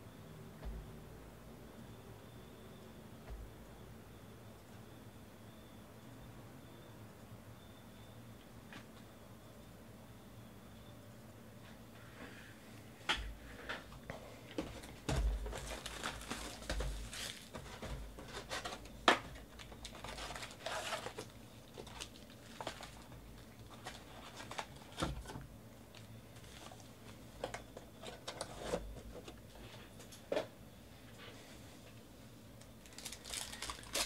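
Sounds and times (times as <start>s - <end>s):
cardboard rustling: 14.5s - 25.3s, 32.8s - 34.0s
foil wrappers crinkling: 15.4s - 25.2s, 25.9s - 28.8s, 32.8s - 34.0s.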